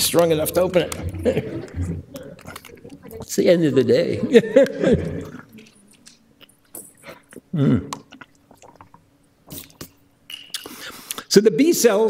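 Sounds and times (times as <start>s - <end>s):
man's voice: 3.3s - 5.3s.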